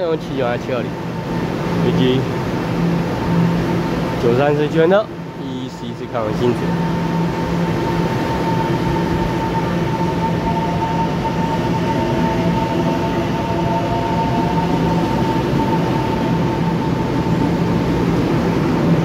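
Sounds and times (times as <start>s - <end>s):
constant whine: 0.0s - 19.0s
electric train rumbling: 0.0s - 19.0s
tone rising in pitch: 6.4s - 17.9s.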